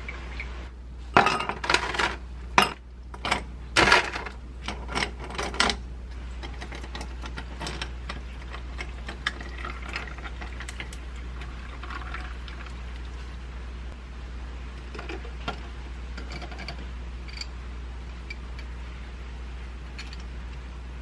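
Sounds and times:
low steady hum: 0.0s - 21.0s
coffee pouring over ice: 8.4s - 13.2s.

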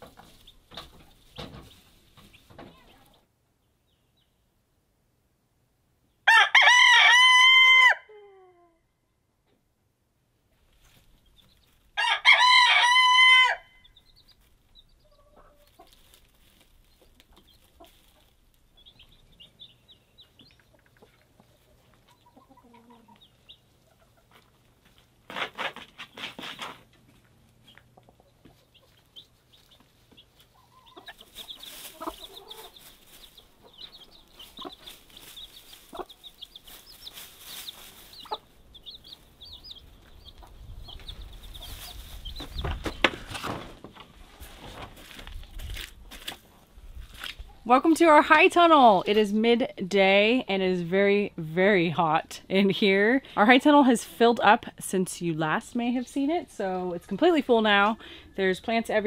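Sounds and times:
chicks peeping rapidly: 0.1s - 3.2s, 10.8s - 11.9s, 13.8s - 24.6s, 27.6s - 43.7s
rooster crowing: 6.3s - 8.4s, 12.0s - 13.8s
hen clucking: 14.1s - 24.7s, 27.6s - 43.3s.

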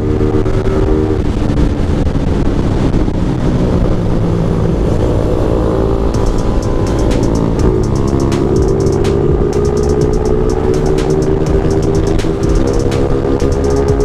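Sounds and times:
wind rushing over microphone: 0.0s - 13.4s
motorcycle engine running: 3.9s - 14.0s.

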